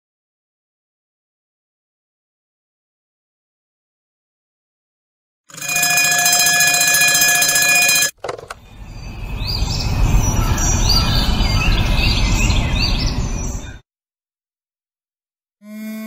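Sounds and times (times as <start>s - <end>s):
high bird-like chirps: 8.6s - 13.8s
low rumble: 8.6s - 13.8s.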